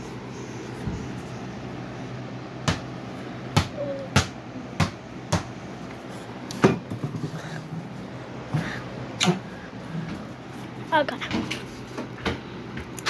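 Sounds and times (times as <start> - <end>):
basketball bouncing on hard floor: 2.6 - 2.8, 3.6 - 5.5.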